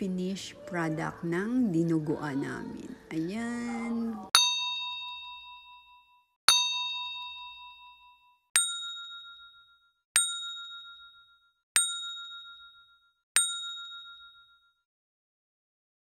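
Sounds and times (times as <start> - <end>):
bright bell dings: 4.4 - 14.8.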